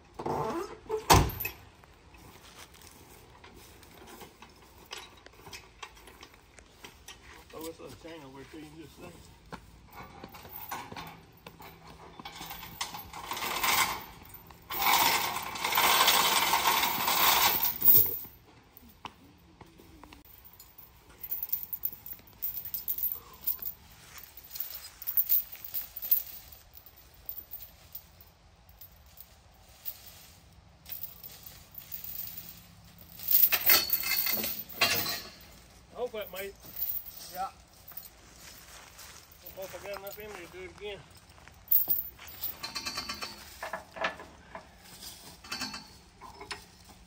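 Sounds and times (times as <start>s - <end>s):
steel chain rattling: 9.8s - 18.8s, 20.3s - 47.0s.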